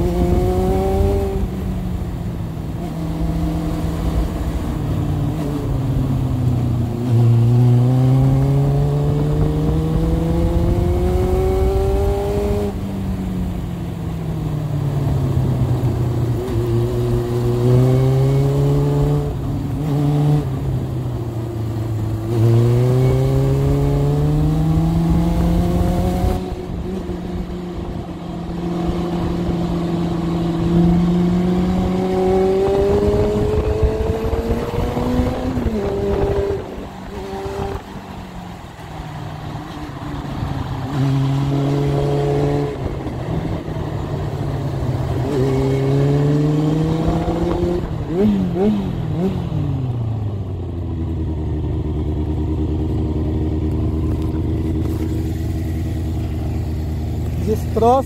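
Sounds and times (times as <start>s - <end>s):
motorcycle engine revving: 0.0s - 58.0s
wind buffeting microphone: 25.0s - 38.3s.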